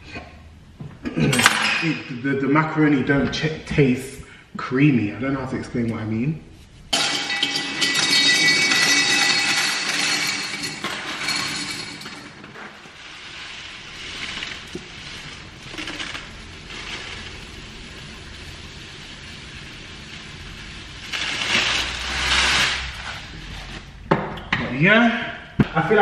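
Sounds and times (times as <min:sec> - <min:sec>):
dry pasta clattering: 0:07.2 - 0:17.8
dry grains running into a jar: 0:13.0 - 0:18.4, 0:21.2 - 0:22.9.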